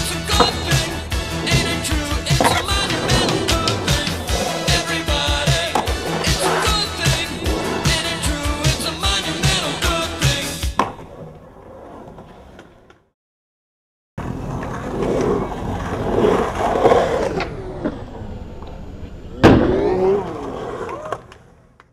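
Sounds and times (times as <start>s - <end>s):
background music: 0.0s - 10.8s
skateboard wheels rolling on concrete: 0.0s - 13.1s, 14.2s - 18.8s, 19.7s - 21.9s
loud sharp skateboard clack: 10.7s - 11.3s.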